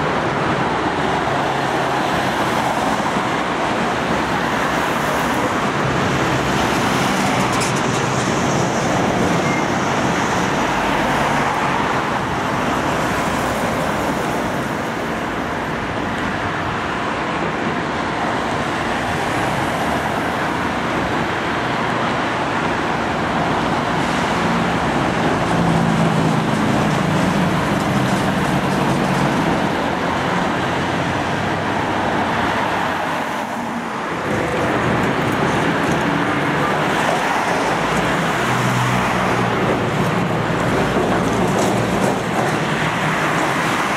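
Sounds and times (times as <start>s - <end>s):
cars and van driving past: 0.0s - 43.9s.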